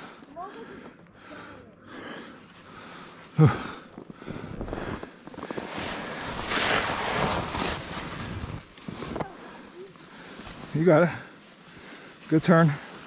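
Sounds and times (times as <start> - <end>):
skis scraping on snow: 4.3 - 13.0.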